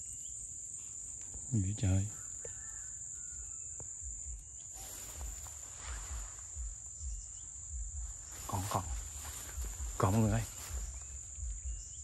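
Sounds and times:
insects droning: 0:00.0 - 0:12.0
low rumbling: 0:04.0 - 0:12.0.

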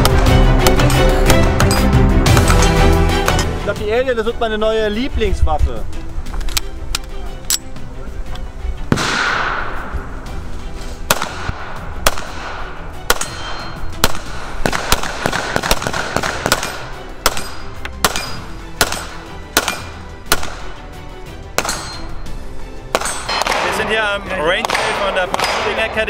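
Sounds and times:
background music: 0:00.0 - 0:26.0
pistol shots: 0:08.9 - 0:09.8, 0:11.1 - 0:20.8, 0:21.6 - 0:22.1, 0:22.9 - 0:23.9, 0:24.5 - 0:26.0.

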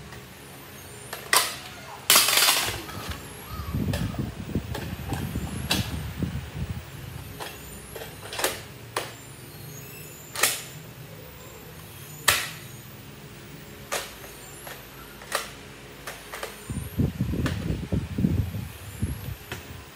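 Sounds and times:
plastic blaster clicks and clacks: 0:13.9 - 0:16.6.

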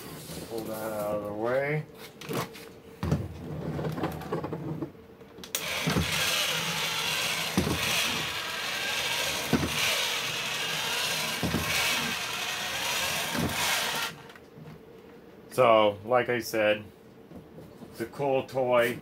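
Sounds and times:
toy motor and gears whirring: 0:05.5 - 0:14.4.

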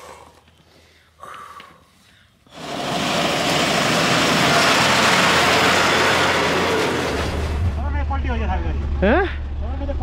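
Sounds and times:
vehicle driving on snowy road: 0:02.5 - 0:10.0.

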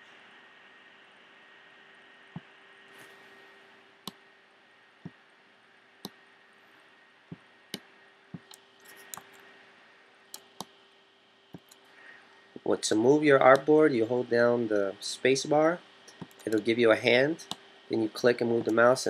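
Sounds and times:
faint steady hum: 0:00.0 - 0:19.0
computer mouse clicks: 0:07.3 - 0:09.4, 0:11.5 - 0:11.9.

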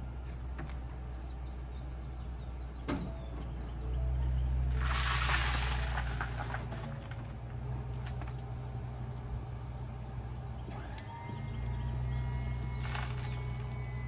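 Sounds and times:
truck low hum: 0:00.0 - 0:14.0
dirt sliding off dump bed: 0:04.6 - 0:08.5, 0:12.7 - 0:14.0
clods dropping: 0:04.7 - 0:07.3.

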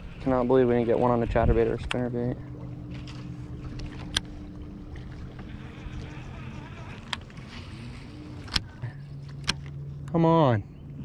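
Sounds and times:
electric trolling motor humming: 0:00.0 - 0:11.0.

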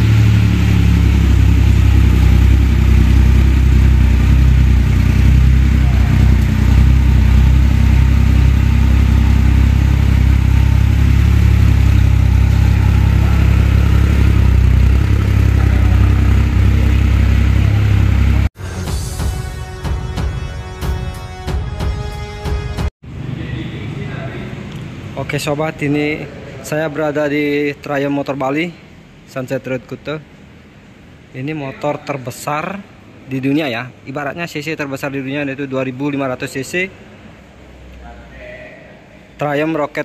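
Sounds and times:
motorcycle engine idling: 0:00.0 - 0:18.5.

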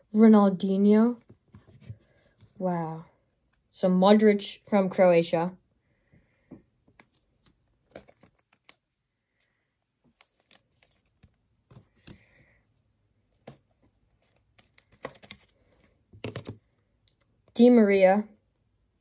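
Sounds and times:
trading cards clicking and rustling: 0:13.4 - 0:16.7.

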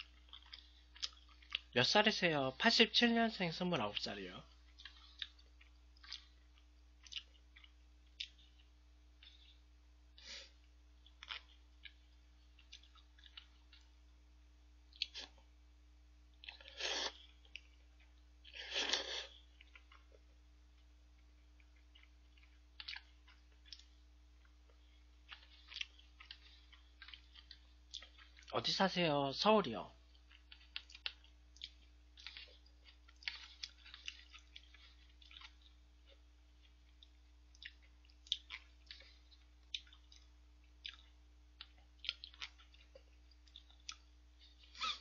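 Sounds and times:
chewing noodles: 0:00.0 - 0:01.8, 0:04.5 - 0:09.6, 0:10.2 - 0:14.0, 0:14.9 - 0:15.5, 0:16.4 - 0:20.3, 0:21.2 - 0:28.6, 0:30.0 - 0:45.0.

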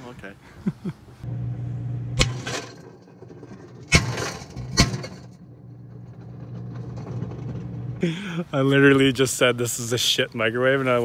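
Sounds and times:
microwave oven humming: 0:01.3 - 0:02.3.

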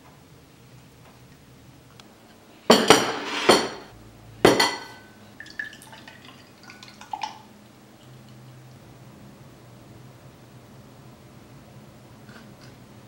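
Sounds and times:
plate and glass set down on desk: 0:02.7 - 0:03.9
juice pouring into glass: 0:05.4 - 0:07.5.

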